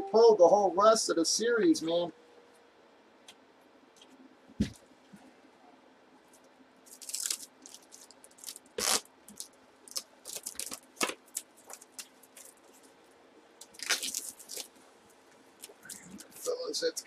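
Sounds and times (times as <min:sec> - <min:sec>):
plastic wrap crinkling: 0:06.9 - 0:13.0, 0:13.6 - 0:14.8.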